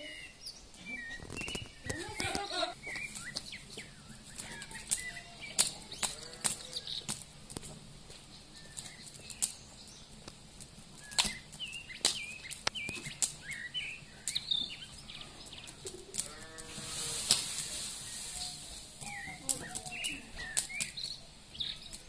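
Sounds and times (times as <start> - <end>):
songbirds chirping: 0.0 - 22.0
sharp clicks: 11.0 - 13.7
low drawn-out bird call: 16.8 - 21.2.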